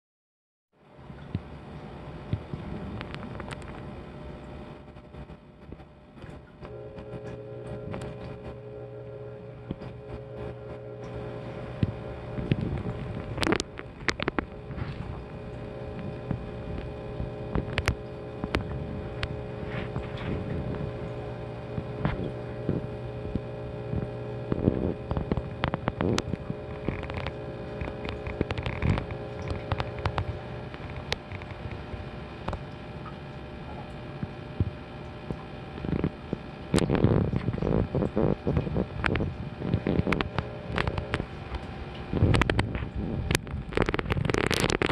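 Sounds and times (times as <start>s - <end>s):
steady low hum: 0.8s - 44.9s
sharp clicks and knocks: 11.8s - 15.1s, 24.5s - 31.8s.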